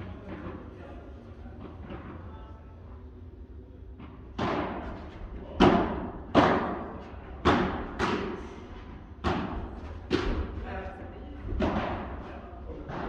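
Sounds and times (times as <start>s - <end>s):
racket striking ball: 4.3s - 5.0s, 5.6s - 8.5s, 9.2s - 10.6s.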